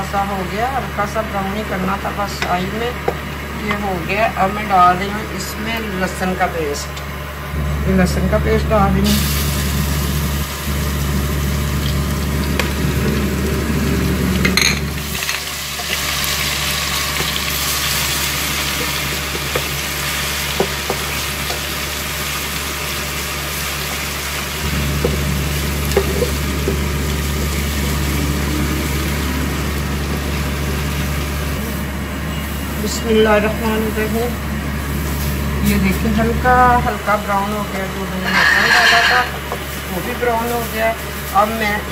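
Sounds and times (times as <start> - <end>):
spices sizzling in hot oil: 9.0 - 31.8, 38.2 - 41.9
low hum: 24.6 - 32.8
wooden spatula scraping a pot: 38.2 - 39.5.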